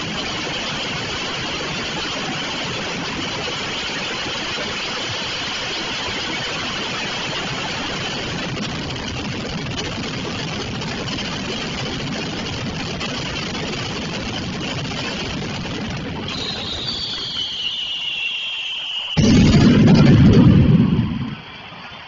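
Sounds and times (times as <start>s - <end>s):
firecrackers crackling: 12.0s - 22.0s.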